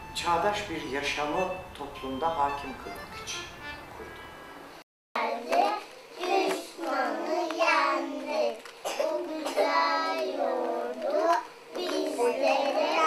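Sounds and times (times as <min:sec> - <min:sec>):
young children singing: 0:05.2 - 0:13.0.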